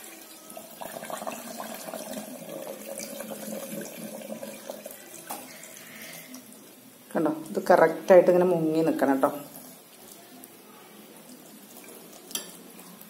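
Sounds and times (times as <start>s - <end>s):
water pouring into glass jar: 0.0s - 6.2s.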